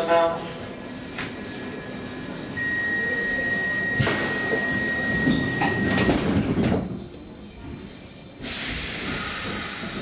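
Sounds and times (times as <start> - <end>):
high door warning beep: 2.6 - 6.3
pneumatic door hiss: 4.0 - 5.4, 8.4 - 10.0.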